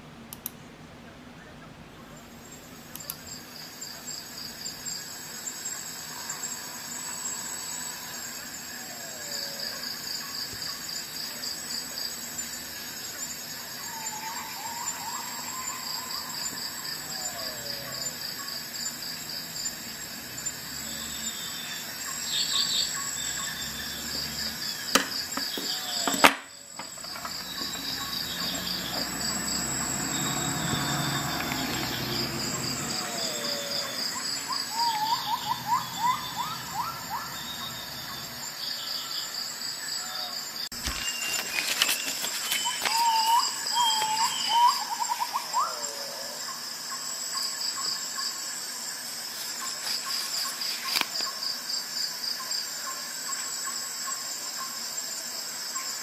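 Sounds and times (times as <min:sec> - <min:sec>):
sharp clicks: 0:00.3 - 0:00.6
crickets chirping: 0:01.4 - 0:56.0
lower calls sliding in pitch: 0:27.3 - 0:38.0, 0:40.9 - 0:46.4.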